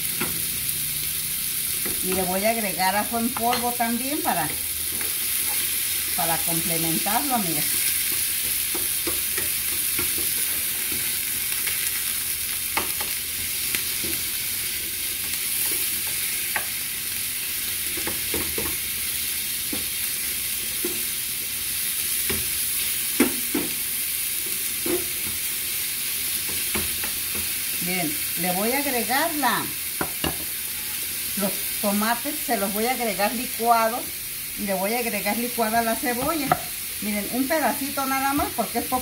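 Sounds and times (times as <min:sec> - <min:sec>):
meat sizzling in a skillet: 0:00.0 - 0:39.0
spoon scraping and knocking pan: 0:01.8 - 0:12.1, 0:30.0 - 0:30.9, 0:36.0 - 0:36.8.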